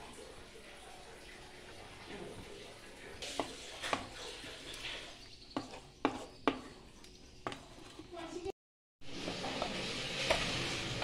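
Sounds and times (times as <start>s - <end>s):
spatula stirring thick curry: 3.2s - 8.5s.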